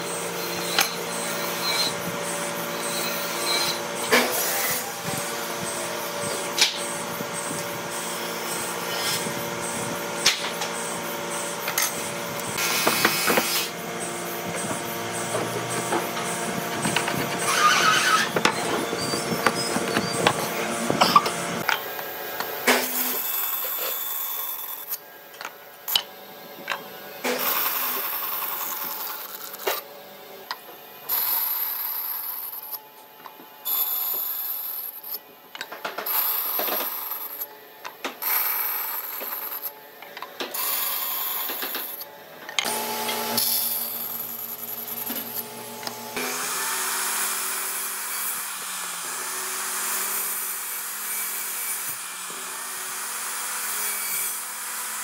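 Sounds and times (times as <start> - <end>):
tool scraping wood: 0.0 - 22.0.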